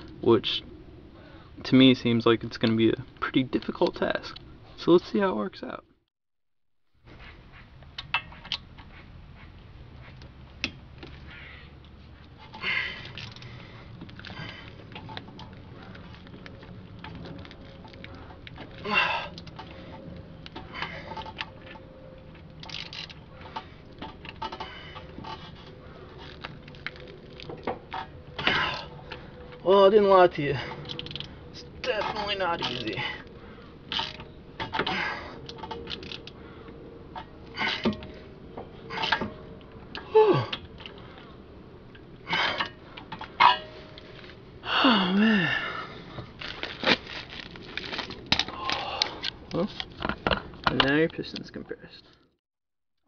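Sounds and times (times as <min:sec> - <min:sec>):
metal clinks and scrapes: 0:12.0 - 0:29.6, 0:30.4 - 0:36.4
man grunting and breathing hard: 0:18.8 - 0:19.4, 0:40.0 - 0:40.7, 0:44.6 - 0:46.1.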